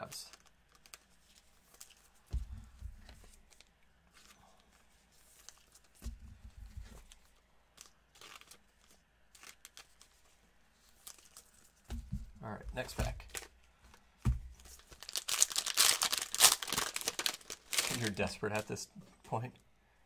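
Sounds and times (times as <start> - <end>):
cellophane wrapper crinkling: 0.0 - 2.2, 7.0 - 11.8, 14.6 - 18.8.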